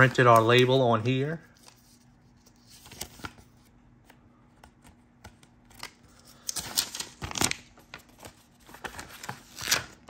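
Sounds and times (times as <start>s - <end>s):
paper rustling and clicks: 4.6s - 9.9s.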